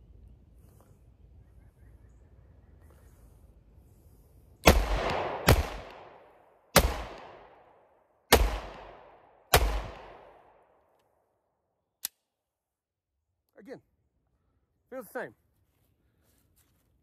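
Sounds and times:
pistol shots with echo: 4.6 - 7.6, 8.3 - 10.5.

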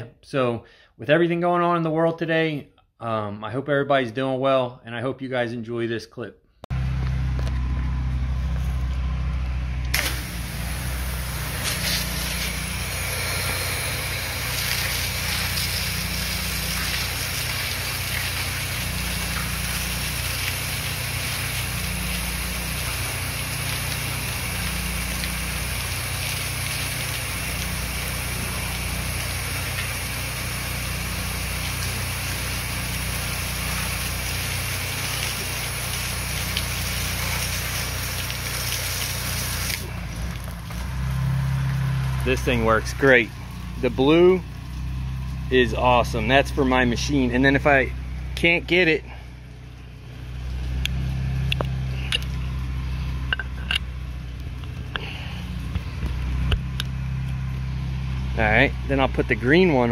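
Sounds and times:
engine humming: 6.7 - 59.9
pressure washer spray hiss: 9.9 - 39.9.

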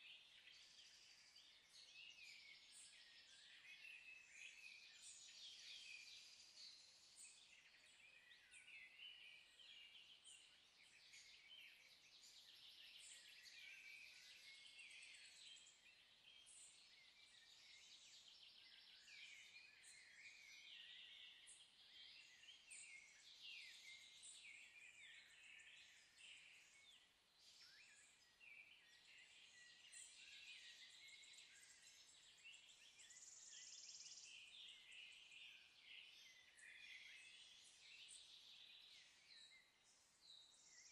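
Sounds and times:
faint birdsong: 0.0 - 40.9.

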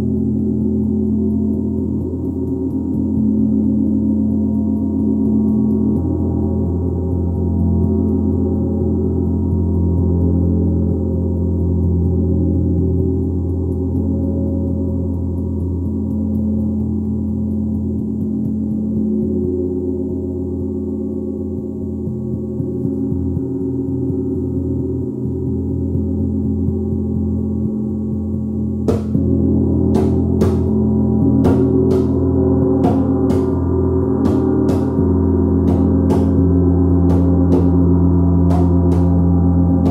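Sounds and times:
gong resonating: 0.0 - 39.9
sharp irregular taps: 28.8 - 29.3, 29.9 - 39.9.

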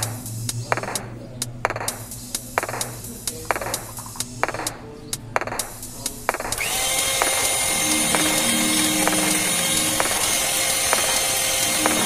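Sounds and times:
electric hand mixer whine: 6.6 - 12.0.

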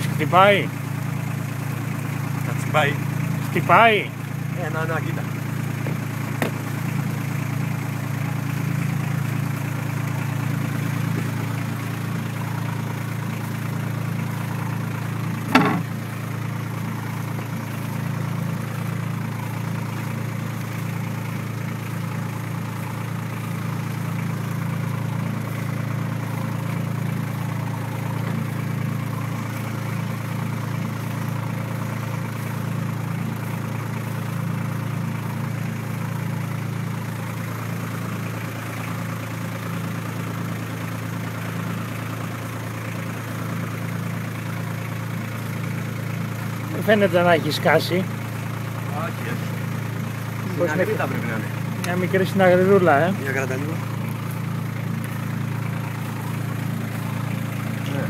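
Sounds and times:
boat engine humming: 0.0 - 58.0
sharp knock: 15.5 - 15.9.

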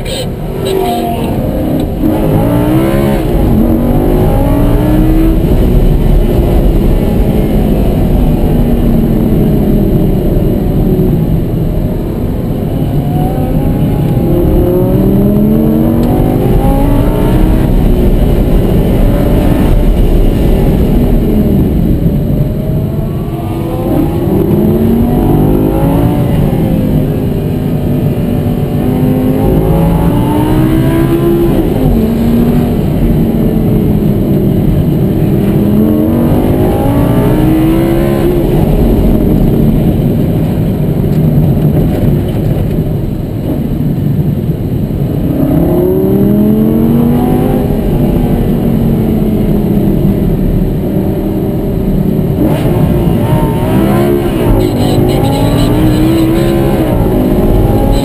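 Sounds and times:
sports car engine accelerating: 0.0 - 44.0, 45.0 - 58.0.

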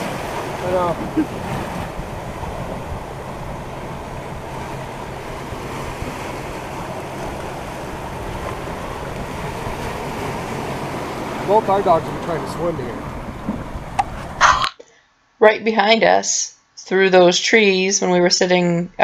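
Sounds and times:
ocean surf over rocks: 0.0 - 14.5
wind buffeting microphone: 0.0 - 14.5.

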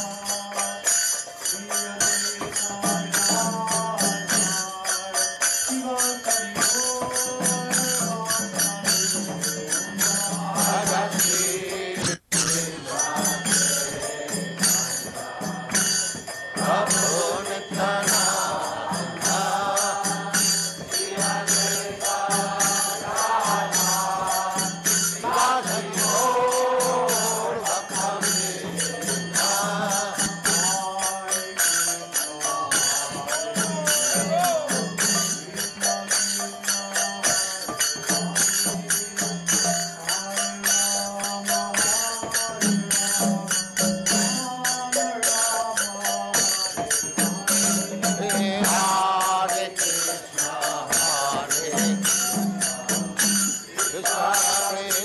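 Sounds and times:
hand cymbals struck: 0.0 - 55.0
person chanting: 1.5 - 15.9, 44.2 - 55.0.

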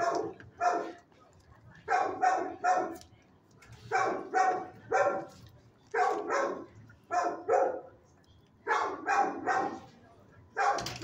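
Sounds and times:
dog barking: 0.0 - 1.0, 1.9 - 3.0, 3.9 - 7.9, 8.7 - 9.9, 10.6 - 11.0.

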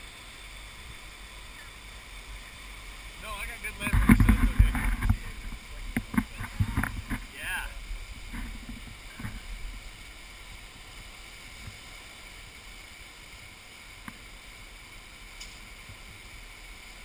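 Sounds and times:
flood water rushing: 0.0 - 17.0
small click: 15.4 - 15.6.

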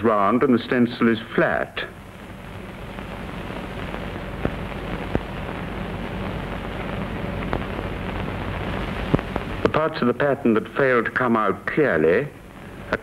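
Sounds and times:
film soundtrack hiss and crackle: 0.0 - 13.0
low hum: 1.8 - 10.0.

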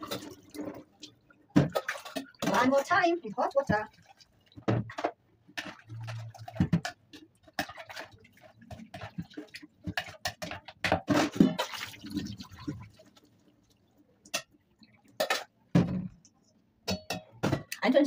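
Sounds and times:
spoon knocking in a steel bowl: 16.8 - 17.3.

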